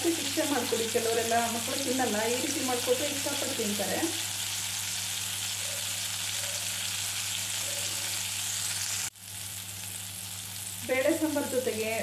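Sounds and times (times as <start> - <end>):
fish sizzling in oil: 0.0 - 12.0.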